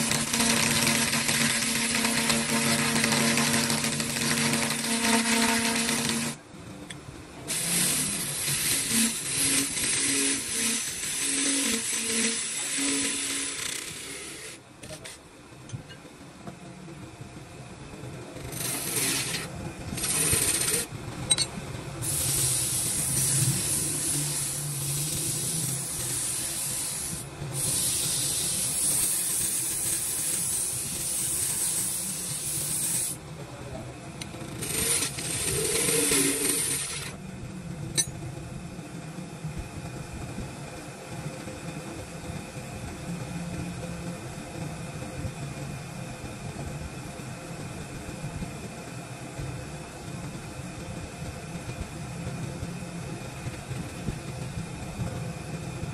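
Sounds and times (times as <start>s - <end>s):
tool scraping on wood: 18.4s - 21.5s, 34.6s - 37.2s.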